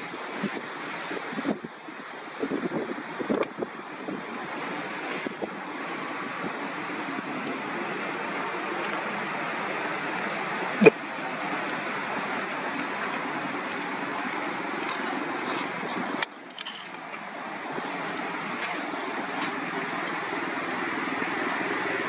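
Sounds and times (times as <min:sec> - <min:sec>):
rushing outdoor background noise: 0:00.0 - 0:22.0.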